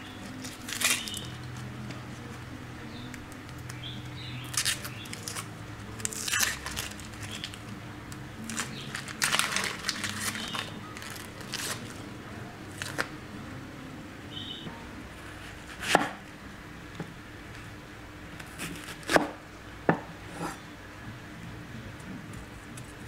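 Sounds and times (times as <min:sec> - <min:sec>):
onion skin crackling and tearing: 0:00.2 - 0:02.4, 0:03.1 - 0:12.0, 0:12.7 - 0:13.1.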